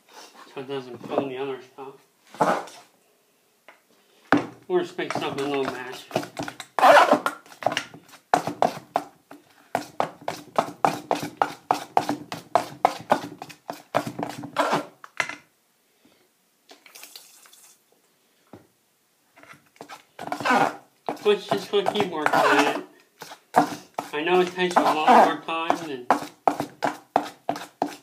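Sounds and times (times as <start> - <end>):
tool scraping metal bowl: 19.8 - 28.0.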